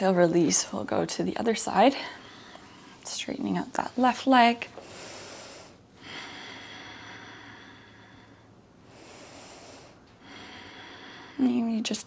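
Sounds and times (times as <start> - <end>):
woman breathing slowly: 1.9 - 3.0, 4.7 - 11.6.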